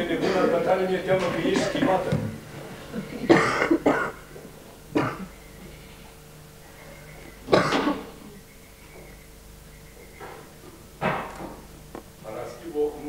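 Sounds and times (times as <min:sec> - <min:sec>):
person coughing: 0:01.4 - 0:01.9, 0:03.3 - 0:04.2, 0:04.9 - 0:05.3, 0:07.5 - 0:08.2.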